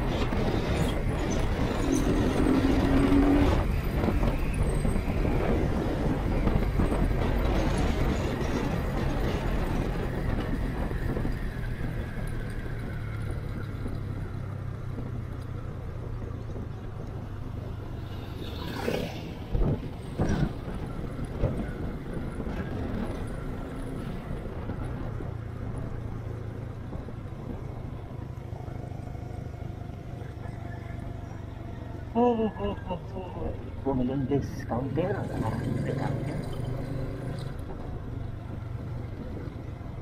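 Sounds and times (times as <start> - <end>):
wind rush: 0.0 - 14.4.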